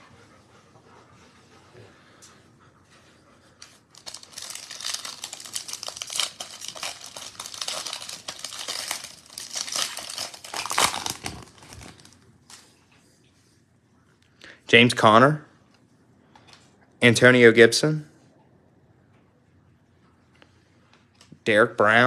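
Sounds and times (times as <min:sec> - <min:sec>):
foil wrapper tearing and crinkling: 0:03.9 - 0:12.6.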